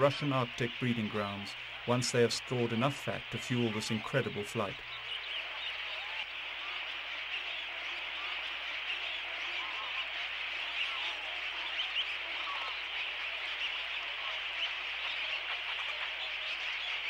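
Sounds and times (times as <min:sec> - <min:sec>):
water birds calling: 0:00.0 - 0:17.0.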